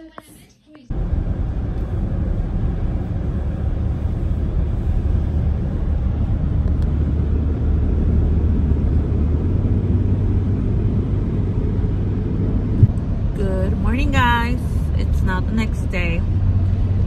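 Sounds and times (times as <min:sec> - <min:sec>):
low hum: 0:00.9 - 0:17.0
tyres on wet road: 0:00.9 - 0:17.0.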